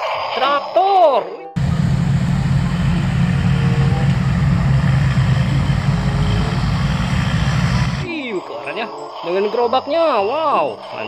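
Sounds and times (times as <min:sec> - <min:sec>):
tractor diesel engine drone: 0:01.6 - 0:08.1.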